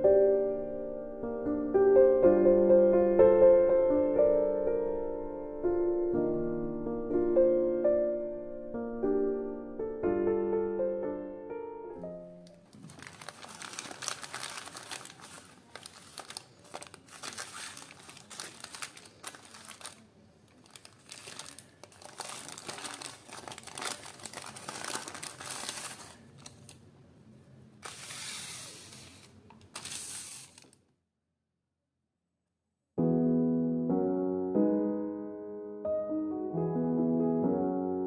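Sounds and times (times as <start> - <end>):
piano phrase: 0.0 - 15.8, 33.0 - 38.0
paper bags crinkling: 12.6 - 26.8, 27.8 - 30.8.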